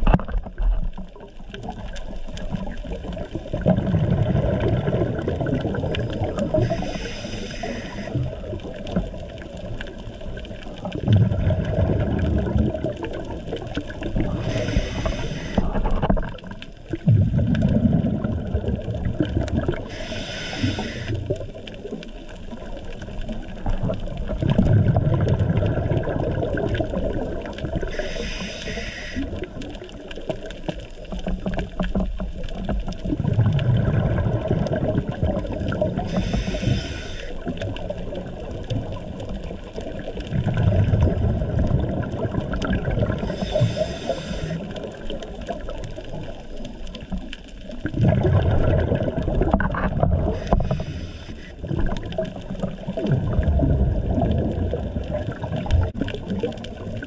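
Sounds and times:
bubbling regulator exhaust: 0:02.6 - 0:21.9, 0:23.6 - 0:29.9, 0:33.0 - 0:39.2, 0:40.2 - 0:45.6, 0:47.8 - 0:57.0
regulator inhale hiss: 0:06.4 - 0:08.4, 0:14.3 - 0:16.0, 0:19.7 - 0:21.4, 0:27.8 - 0:29.6, 0:36.0 - 0:37.6, 0:43.2 - 0:45.0, 0:50.3 - 0:51.6.

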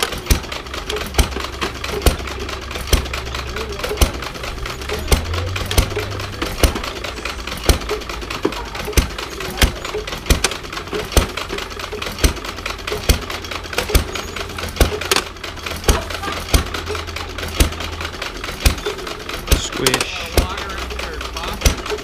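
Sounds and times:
hay press clacking: 0:00.0 - 0:22.0
low engine drone: 0:00.9 - 0:08.8.

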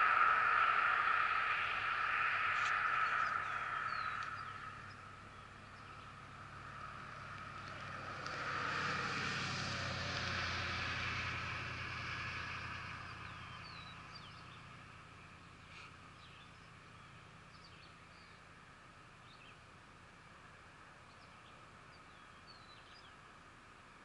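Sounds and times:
faint bird chirps: 0:00.0 - 0:08.0
broad rushing noise: 0:00.0 - 0:13.0.

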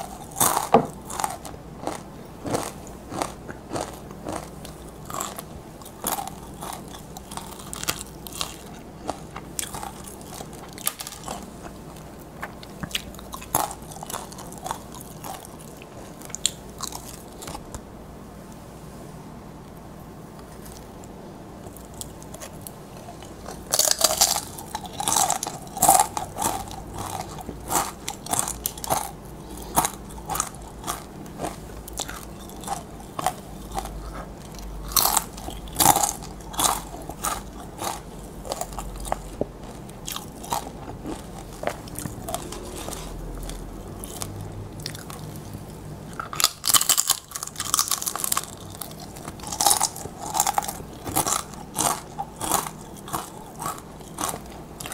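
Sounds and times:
chips crunching while chewed: 0:00.0 - 0:17.8, 0:21.7 - 0:54.9.

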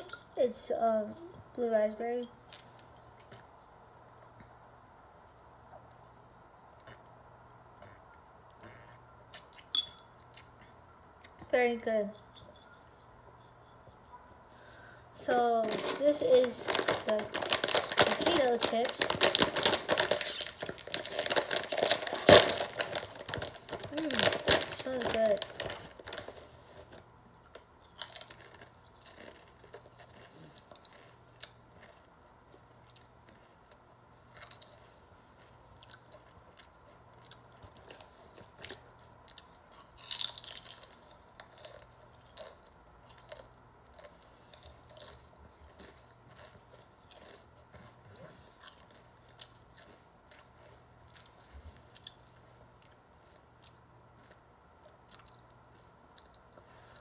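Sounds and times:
person crunching potato chips: 0:15.5 - 0:57.0.

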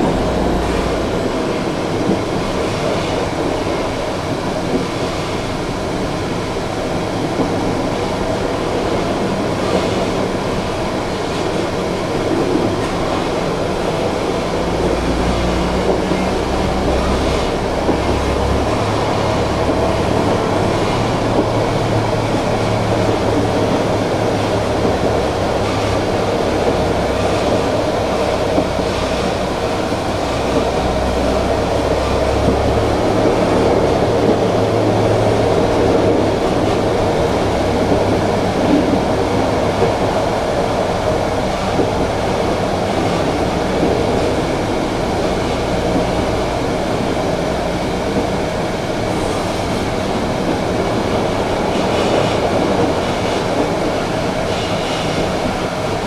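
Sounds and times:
tram wheels rumbling on rails: 0:00.0 - 0:56.0.

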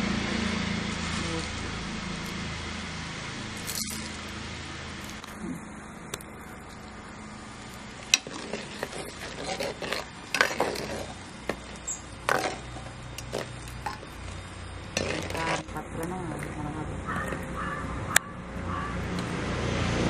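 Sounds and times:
skimmer scraping clay pot: 0:04.9 - 0:17.7.

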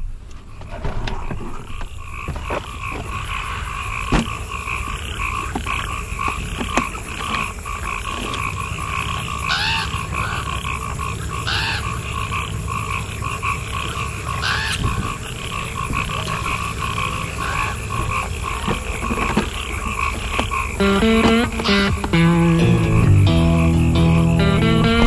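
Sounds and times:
chorus of frogs calling: 0:00.5 - 0:25.0
low wind rumble: 0:10.7 - 0:18.1.

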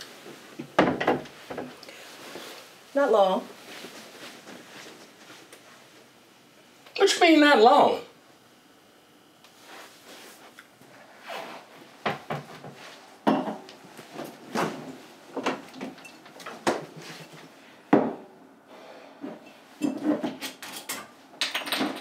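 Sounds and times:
dishes and utensils clinking: 0:13.3 - 0:13.7.

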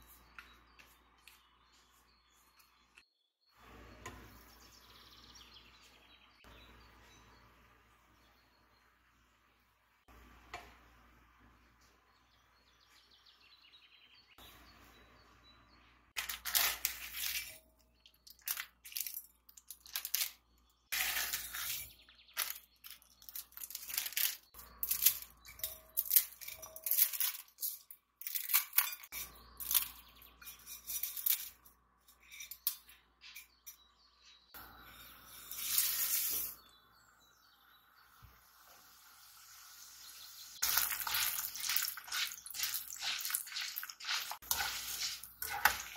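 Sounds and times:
utensils and cookware clattering: 0:16.2 - 0:36.6, 0:40.6 - 0:45.9.

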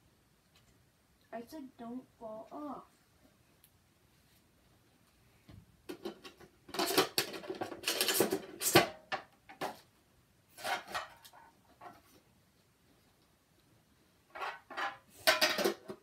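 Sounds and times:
small objects clattering and rustling: 0:05.9 - 0:09.9, 0:10.5 - 0:12.3, 0:14.3 - 0:16.0.

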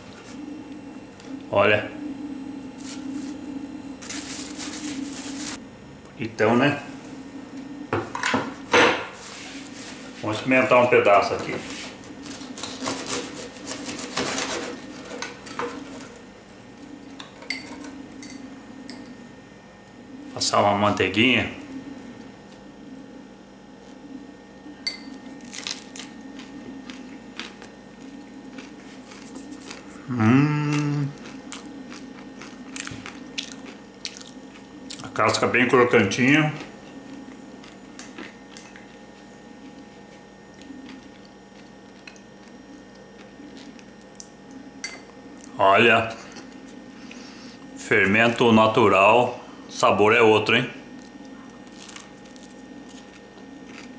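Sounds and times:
knife sawing bread crust: 0:04.0 - 0:05.6.

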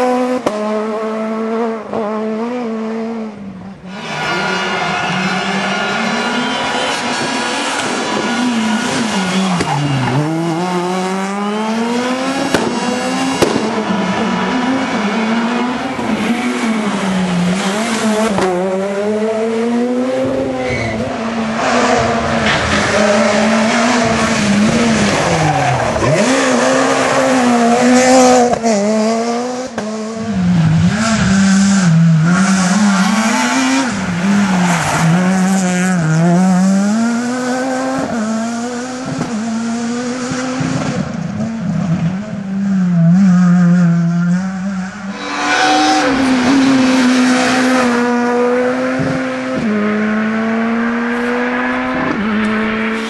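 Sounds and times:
rally car engines at high revs: 0:00.0 - 0:53.0.

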